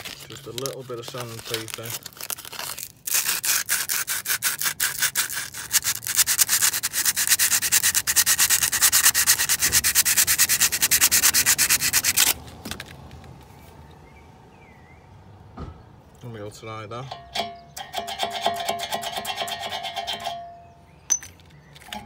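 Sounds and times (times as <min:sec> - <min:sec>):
sandpaper rubbing metal pin: 0:00.6 - 0:12.4.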